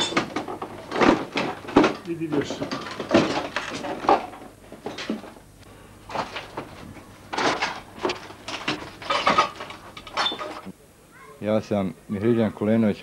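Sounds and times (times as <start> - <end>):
rubble and broken wood crunching: 0.0 - 5.4, 6.1 - 10.7.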